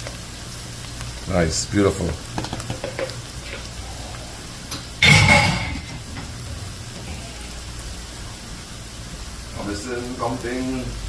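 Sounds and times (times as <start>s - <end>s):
food sizzling in oil: 0.0s - 11.0s
kitchenware clattering: 2.4s - 3.7s, 4.7s - 7.3s.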